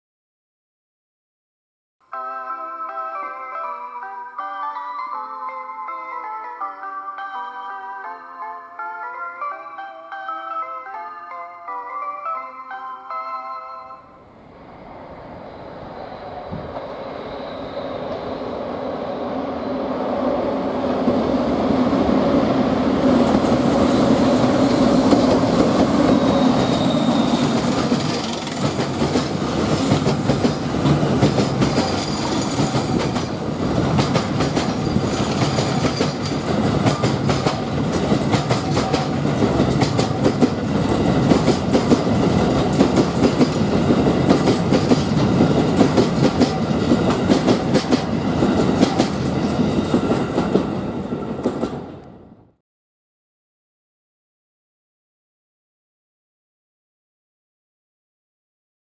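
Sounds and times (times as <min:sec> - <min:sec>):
electric locomotive humming: 0:02.2 - 0:52.4
train wheels clattering over rail joints: 0:27.4 - 0:50.7.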